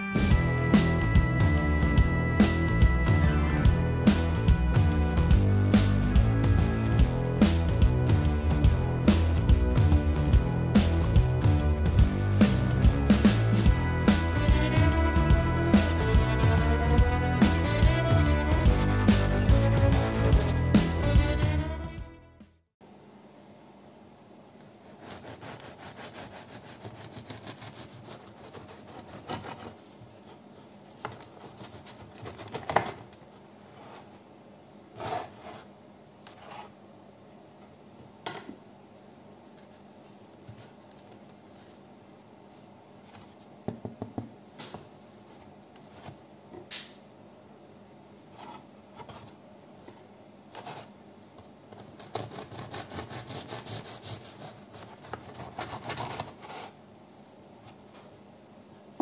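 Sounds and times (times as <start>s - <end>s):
bread knife sawing crusty loaf: 24.8s - 29.8s, 52.0s - 56.8s.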